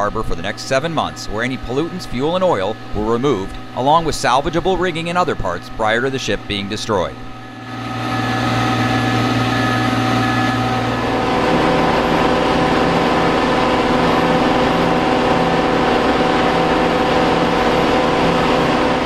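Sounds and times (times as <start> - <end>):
boat lift engine running: 7.3 - 19.0.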